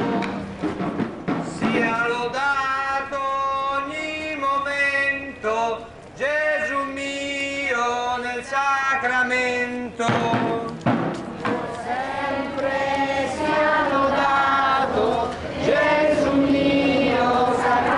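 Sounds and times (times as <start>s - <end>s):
choir singing a chant: 11.5s - 17.9s.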